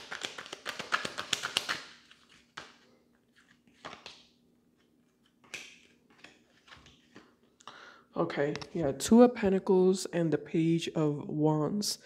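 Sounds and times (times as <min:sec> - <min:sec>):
cards being shuffled: 0:00.0 - 0:07.5.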